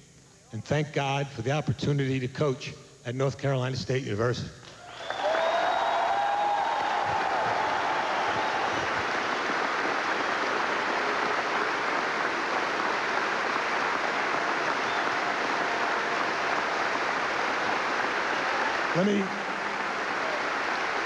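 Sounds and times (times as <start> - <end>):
crowd applauding: 4.7 - 21.0.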